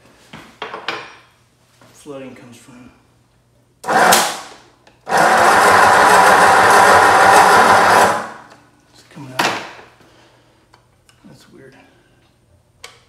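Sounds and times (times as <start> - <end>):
starter motor cranking engine: 5.1 - 8.4.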